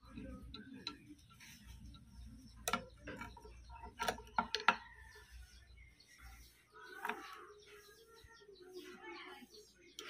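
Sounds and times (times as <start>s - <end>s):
sharp metallic clicks and taps: 0.0s - 1.3s, 1.9s - 4.8s.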